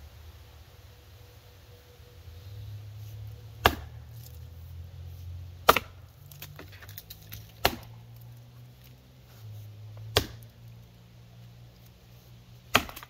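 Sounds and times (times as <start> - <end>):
axe chopping wood: 3.6 - 4.3, 5.6 - 8.1, 10.0 - 10.5, 12.6 - 13.0.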